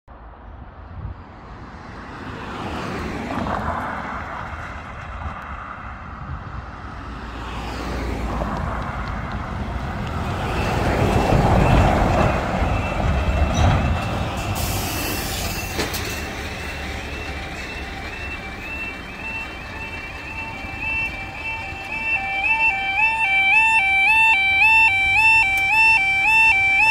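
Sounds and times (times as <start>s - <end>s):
car driving over crossing: 1.3s - 26.9s
heavy lorry rumble: 3.6s - 26.9s
crossing warning alarm tones: 8.3s - 26.9s.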